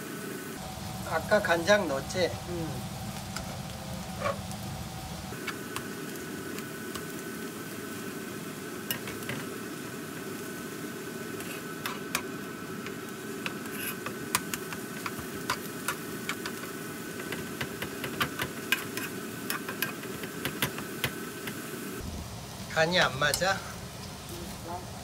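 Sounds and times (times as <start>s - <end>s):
steady low hum: 0.0s - 18.0s
metal spoon scraping a wok: 11.4s - 12.3s, 13.4s - 15.7s, 18.1s - 20.2s.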